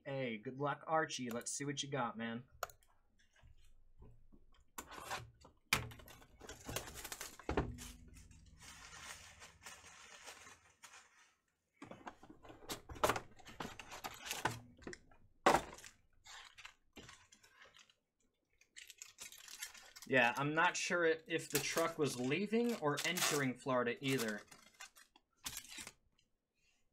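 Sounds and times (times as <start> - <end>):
foil card packs rustling: 6.1 - 11.5, 12.2 - 14.6, 15.5 - 18.0, 18.8 - 20.4, 21.4 - 26.0
wrapper tearing and crinkling: 6.4 - 11.4, 18.7 - 20.4, 21.5 - 26.0.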